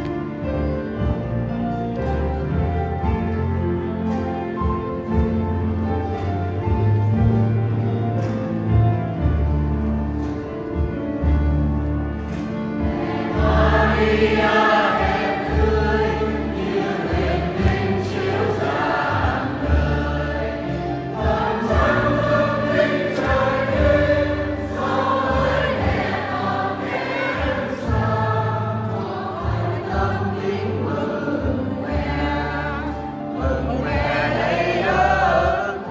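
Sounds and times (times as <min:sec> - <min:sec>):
instrumental accompaniment: 0:00.0 - 0:35.9
choir singing a hymn: 0:04.6 - 0:35.9.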